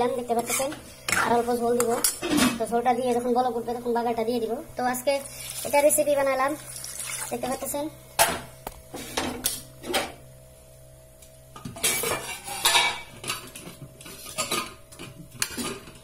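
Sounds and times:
metal pots and ladle clattering: 0:11.6 - 0:13.6.

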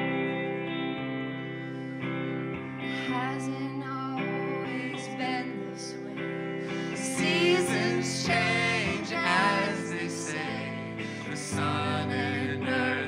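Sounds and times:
electric guitar chords: 0:00.0 - 0:13.0
woman singing: 0:02.9 - 0:13.0.

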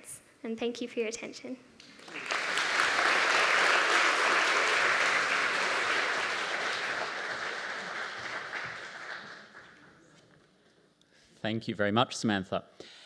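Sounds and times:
audience applauding: 0:01.8 - 0:10.1.

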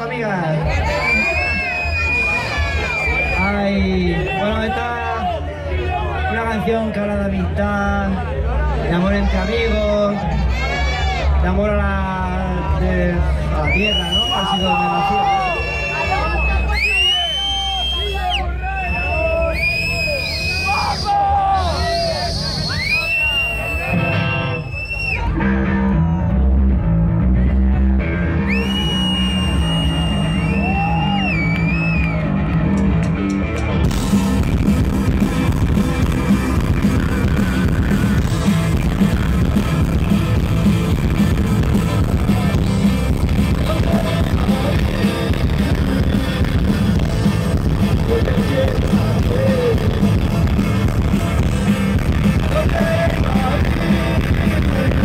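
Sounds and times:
live rock band: 0:00.0 - 0:55.0
sung vocals: 0:43.5 - 0:47.0, 0:47.9 - 0:55.0.

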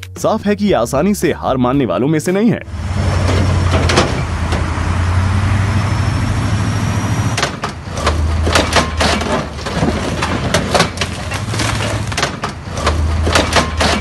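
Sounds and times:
truck engine running hard: 0:02.7 - 0:14.0
wood and metal cracking: 0:03.1 - 0:05.0, 0:07.2 - 0:14.0.

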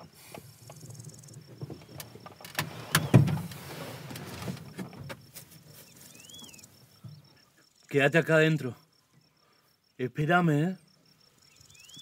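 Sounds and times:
bird chirp: 0:00.6 - 0:03.2, 0:05.6 - 0:10.0, 0:10.6 - 0:12.0
rustling: 0:01.5 - 0:07.0.

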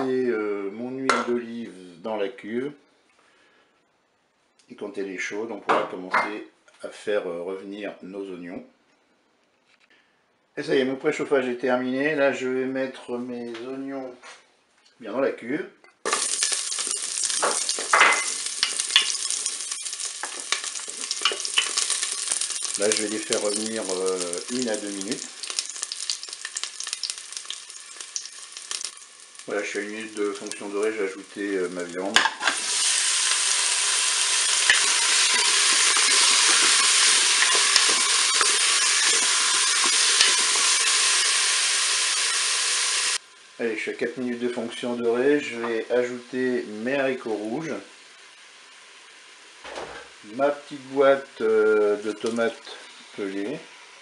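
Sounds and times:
onions sizzling in oil: 0:16.0 - 0:54.0
wooden spoon stirring and scraping: 0:34.6 - 0:41.2.

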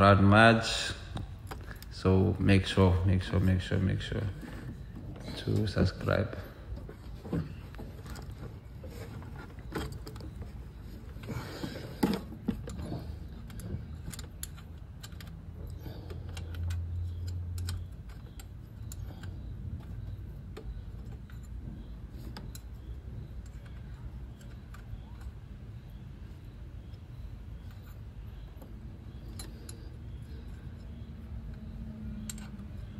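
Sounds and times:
low steady hum: 0:00.0 - 0:32.9
light clicks and rattles: 0:04.1 - 0:25.6.

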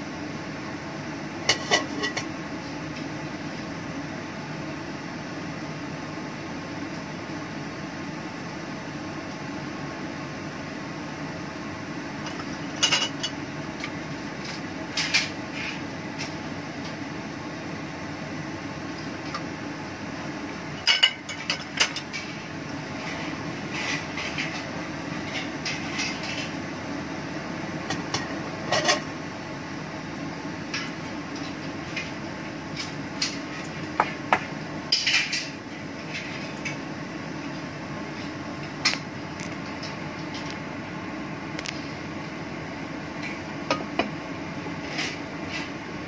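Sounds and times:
fan hum: 0:00.0 - 0:46.0
dishes and pots clinking: 0:01.5 - 0:02.3, 0:28.1 - 0:29.0.

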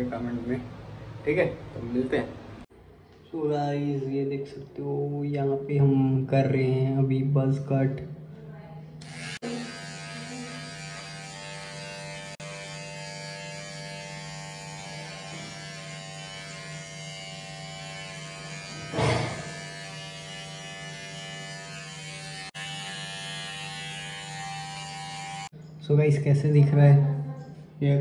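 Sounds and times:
electric hair trimmer buzzing: 0:09.0 - 0:25.5.

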